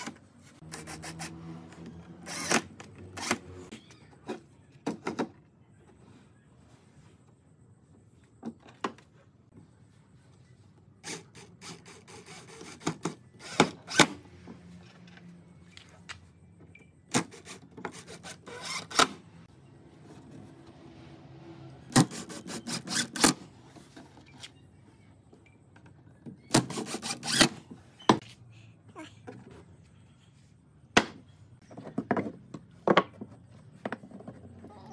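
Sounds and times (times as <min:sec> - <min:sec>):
cordless drill driving screws: 0:02.2 - 0:03.5.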